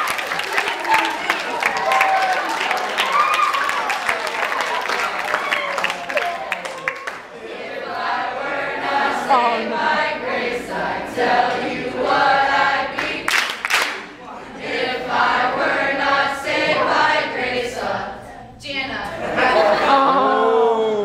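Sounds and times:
group singing unaccompanied: 7.2 - 18.5.

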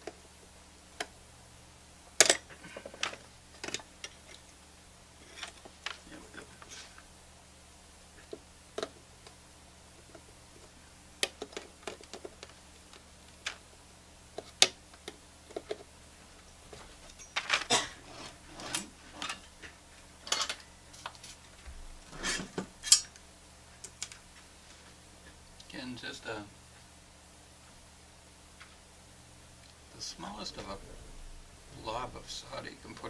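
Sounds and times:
scrapes and rattles: 16.7 - 23.1.

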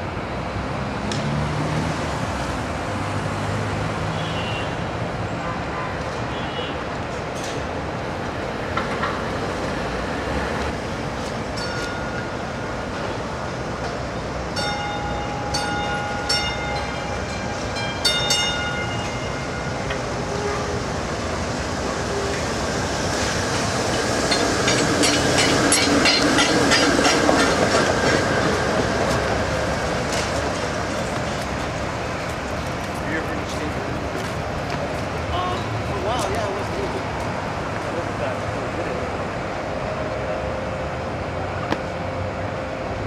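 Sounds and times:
streetcars running on track: 0.0 - 43.0
streetcar bell ringing: 11.4 - 32.3, 35.3 - 37.0
wheels clicking over rails: 23.1 - 33.2.

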